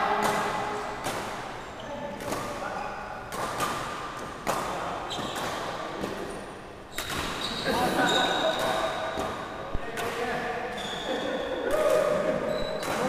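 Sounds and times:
rackets smacking shuttlecock: 0.2s - 2.6s, 3.3s - 6.3s, 6.9s - 7.6s, 11.7s - 13.0s.

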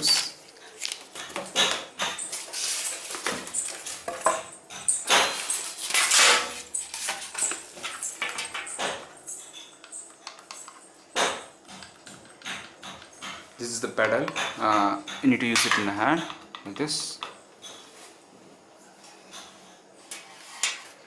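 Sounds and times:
plastic wrap rustling: 0.0s - 1.5s, 2.2s - 4.2s.

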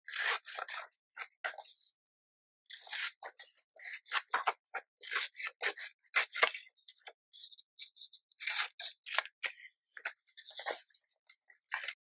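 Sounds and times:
scissors snipping paper: 0.1s - 0.9s, 2.7s - 6.7s, 8.4s - 10.7s.

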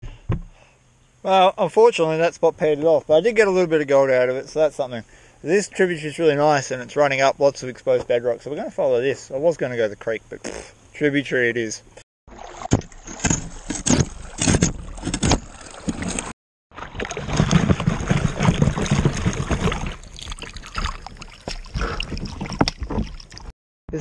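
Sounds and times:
water sloshing and splashing: 12.3s - 23.6s.

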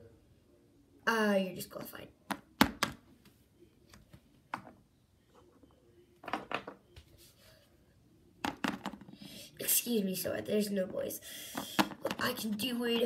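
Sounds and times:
plastic figurines tapping on book: 2.3s - 3.0s, 8.4s - 9.1s, 11.5s - 12.6s.

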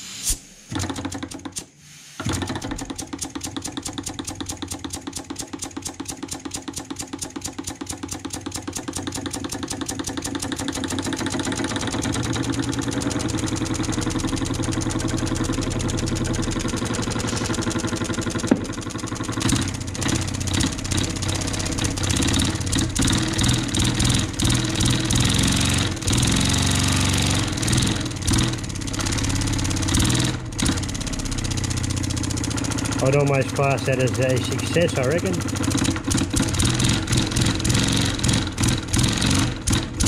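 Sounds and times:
air engine chuffing with hiss: 0.0s - 0.8s.

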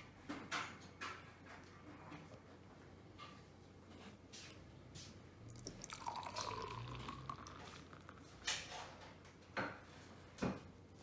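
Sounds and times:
beer pouring into glass: 5.5s - 8.3s.

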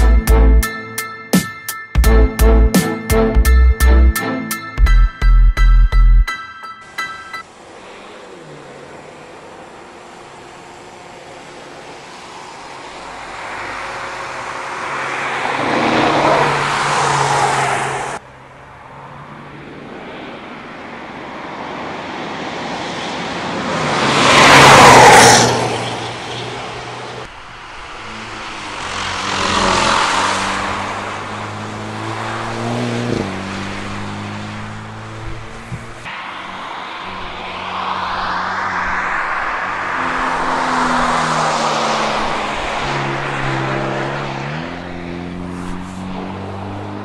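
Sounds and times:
engine shifting gears: 26.8s - 47.0s
car engine driving past: 27.6s - 47.0s.

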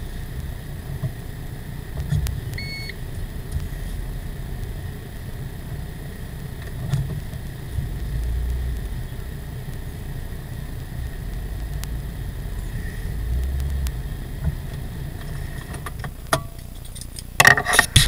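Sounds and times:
car engine and tyre rumble: 0.0s - 18.0s
short electronic beep: 2.6s - 3.0s.

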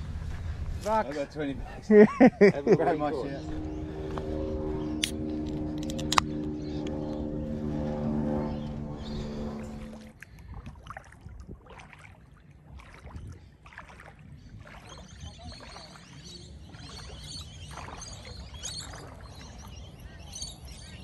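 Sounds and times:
wind rumble on microphone: 0.0s - 21.0s
small waves lapping on shore: 9.3s - 21.0s.

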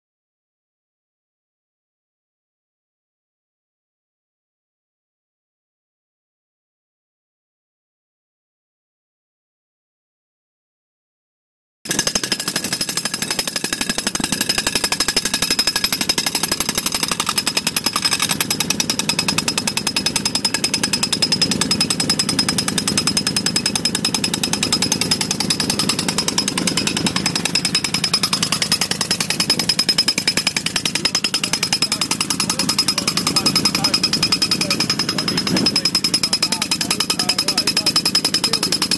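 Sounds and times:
pneumatic impact mole hammering: 11.9s - 38.9s.

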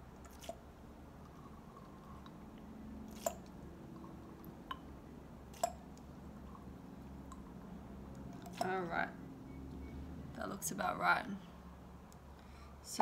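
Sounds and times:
liquid dripping: 0.1s - 8.8s.

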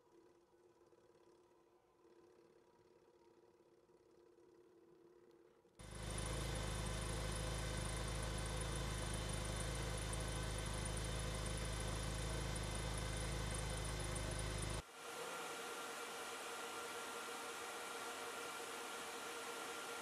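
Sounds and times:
machine hum: 5.8s - 20.0s.

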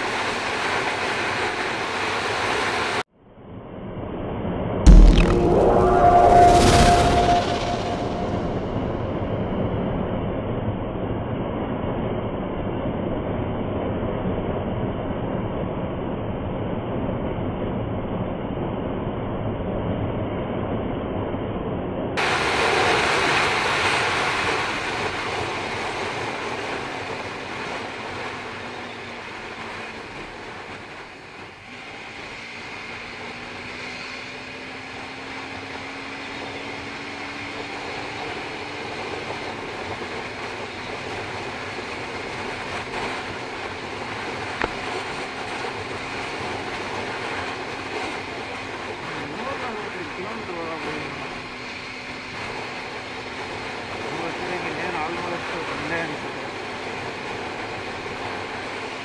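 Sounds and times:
faint engine note rising in pitch: 4.9s - 10.4s.

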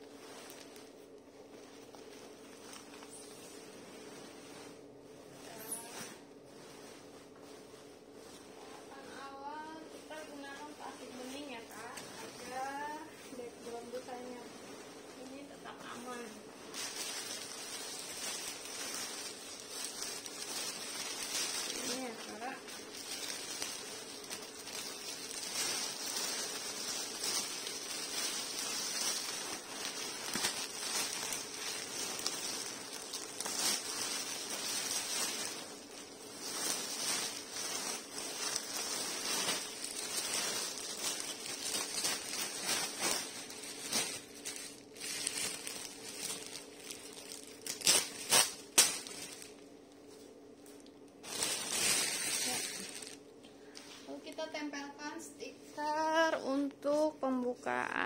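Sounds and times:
plastic wrap rustling and crinkling: 0.0s - 58.0s.

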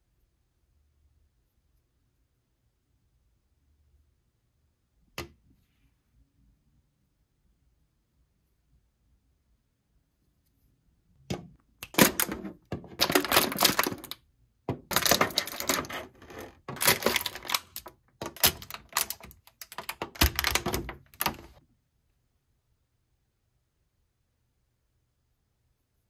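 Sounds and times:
plastic blister tray crackling: 11.8s - 21.6s.

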